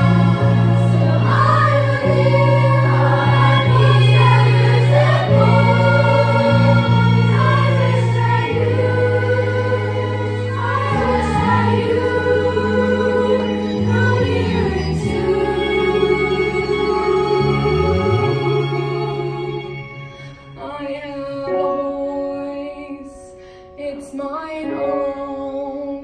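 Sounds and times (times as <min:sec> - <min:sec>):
children's choir singing: 0:00.0 - 0:20.0
instrumental backing with bass: 0:00.0 - 0:23.7.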